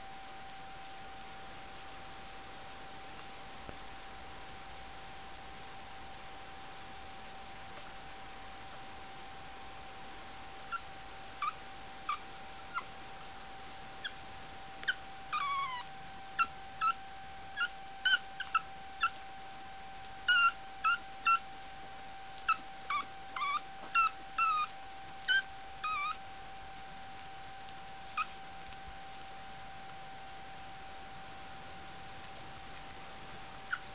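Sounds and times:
puppies squeaking and yipping: 14.8 - 15.8, 17.6 - 19.2, 20.3 - 21.4, 22.5 - 26.2, 33.7 - 33.9.

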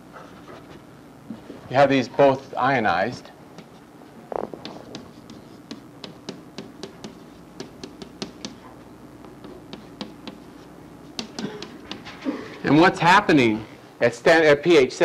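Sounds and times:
chalk tapping and scratching: 3.6 - 3.9, 4.6 - 8.7, 9.4 - 12.2.

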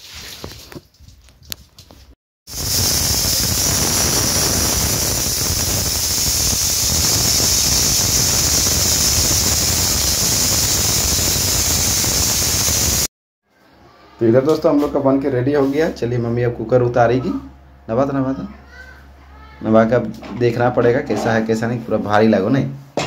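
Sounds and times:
pressure cooker whistle hissing: 2.5 - 13.1.

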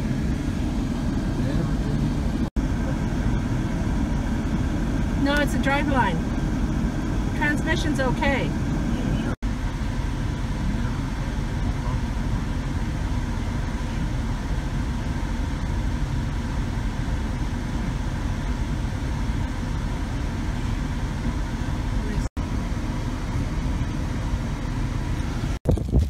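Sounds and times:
faint steady hum tones: 0.0 - 25.6
car engine and fan rumble: 0.0 - 26.0.

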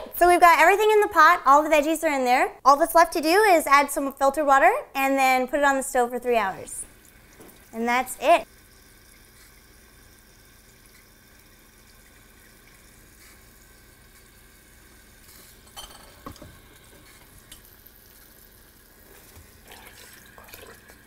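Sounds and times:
water stream running into pot: 6.7 - 21.0.

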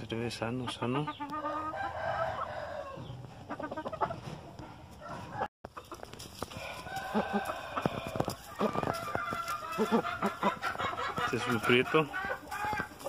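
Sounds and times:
clucking calls: 0.4 - 4.6, 5.2 - 13.0
rooster crowing: 1.5 - 3.0, 6.5 - 10.1.

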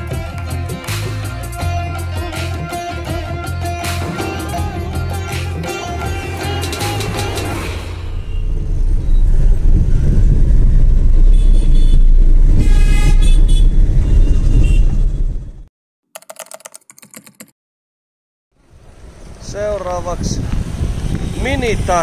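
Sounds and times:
road and wind rumble in car: 7.4 - 15.6, 18.6 - 22.0
car horns honking: 11.3 - 15.1
rattle of clicks: 16.2 - 17.5.

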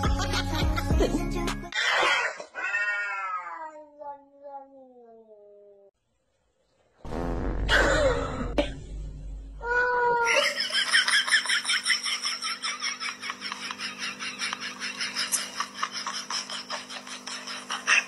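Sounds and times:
low steady hum: 7.8 - 10.9.

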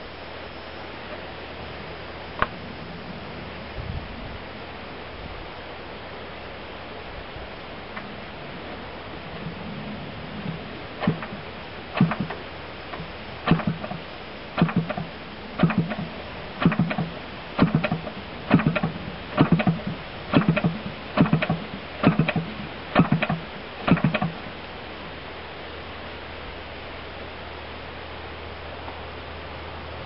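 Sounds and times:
model engine turned over by hand: 12.0 - 14.0, 14.6 - 24.4.

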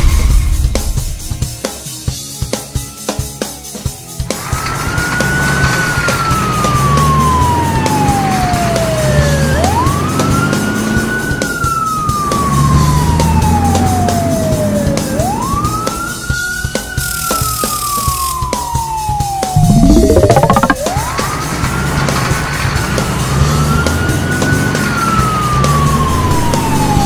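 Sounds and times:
cartoon siren wailing: 19.6 - 21.1.

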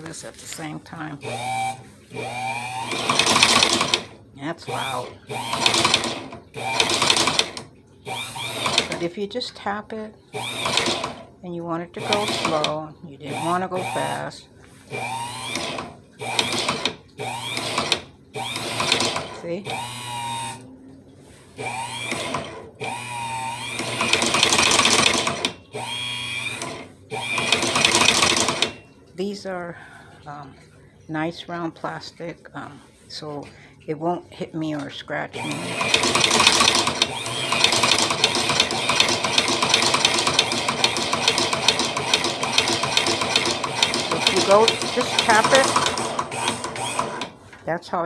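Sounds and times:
sewing machine motor whining: 1.1 - 9.1, 10.3 - 11.3, 11.9 - 20.7, 21.6 - 28.8, 35.3 - 47.4
mechanism clattering rapidly: 35.8 - 47.2.

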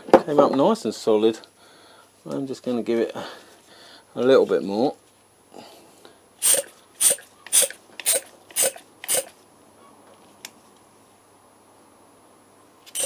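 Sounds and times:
hand vacuum pump strokes: 6.4 - 9.4.

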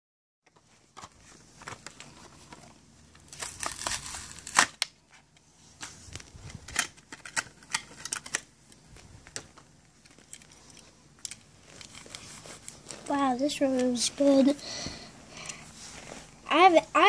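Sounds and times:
plastic packaging crinkling and tearing: 3.2 - 5.0.

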